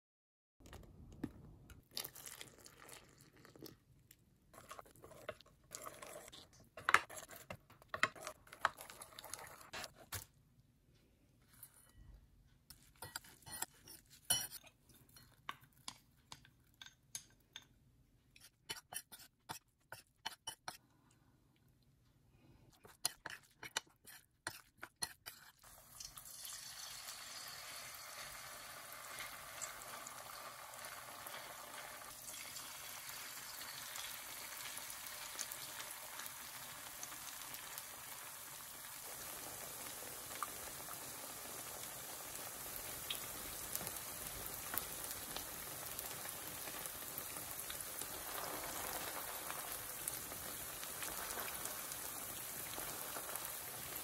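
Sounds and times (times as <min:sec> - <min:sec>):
metal spoon scraping a bowl: 0:12.7 - 0:15.4, 0:18.4 - 0:20.8, 0:22.8 - 0:25.6
hot oil sizzling: 0:25.6 - 0:54.0.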